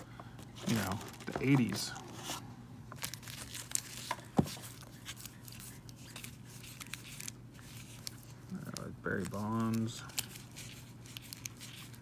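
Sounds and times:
low steady hum: 0.0s - 12.0s
cards in plastic sleeves flipping: 3.0s - 12.0s.

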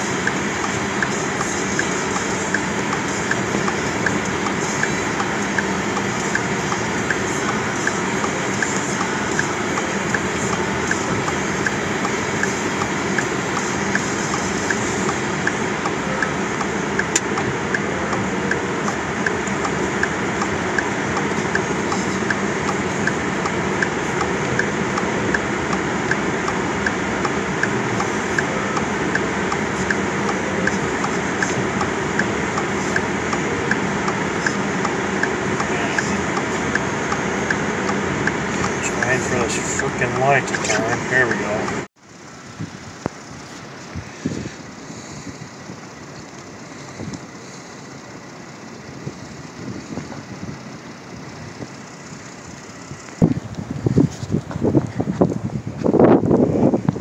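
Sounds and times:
car cabin engine and blower noise: 0.0s - 57.0s
faint regular ticking: 0.1s - 41.9s.

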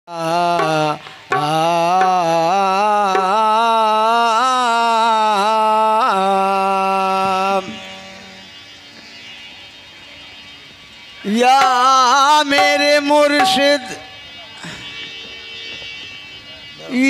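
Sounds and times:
man singing wordless phrase: 0.1s - 8.0s, 11.3s - 14.1s.

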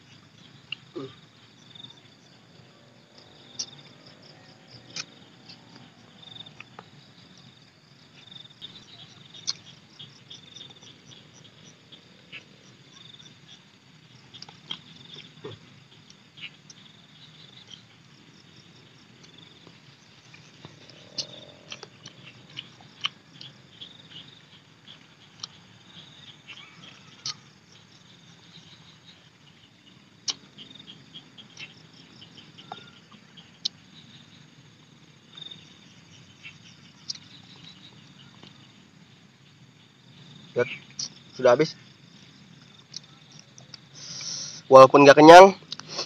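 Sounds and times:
insects chirping trill: 0.0s - 46.0s
chewing and lip-smacking: 9.4s - 9.7s, 14.3s - 16.8s, 20.3s - 23.6s, 24.9s - 25.6s, 30.2s - 30.5s, 42.8s - 43.9s.

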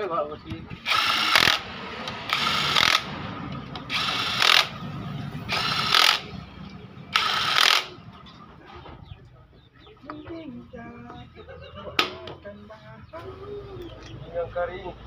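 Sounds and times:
cordless drill driving bolts: 0.8s - 3.1s, 3.7s - 4.8s, 5.5s - 6.3s, 7.1s - 7.9s.

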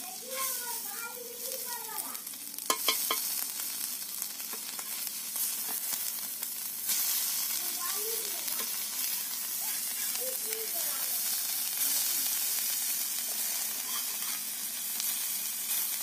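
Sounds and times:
fish sizzling in oil: 0.0s - 16.0s
metal spatula scraping a pan: 13.3s - 15.9s.

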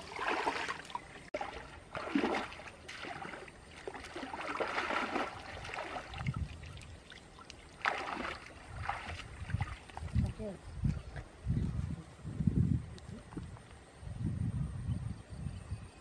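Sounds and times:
water splashing from wading: 0.0s - 10.5s.

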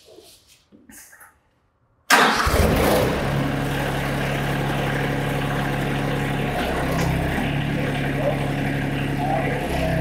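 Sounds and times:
tractor engine running: 2.1s - 10.0s.

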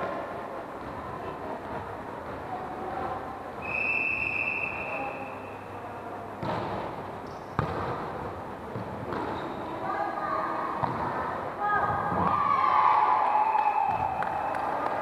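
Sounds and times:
referee's whistle: 3.6s - 5.6s
volleyball hits echoing: 6.4s - 9.5s, 10.7s - 12.6s, 13.6s - 15.0s.

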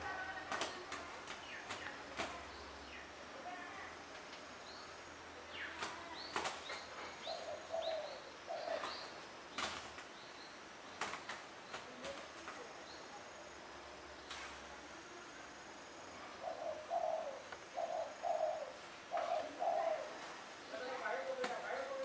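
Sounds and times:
doves' wings flapping: 0.0s - 2.5s, 5.7s - 7.0s, 8.7s - 10.2s, 10.9s - 12.8s, 21.2s - 22.0s.

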